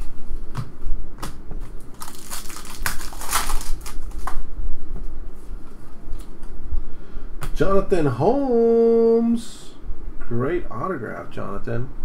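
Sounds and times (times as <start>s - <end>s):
card pack wrapper crinkling: 1.8s - 4.4s.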